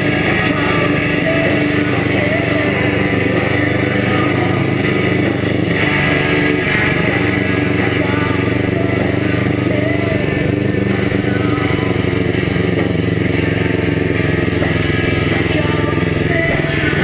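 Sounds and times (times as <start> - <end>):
buggy engine running: 0.0 - 17.0.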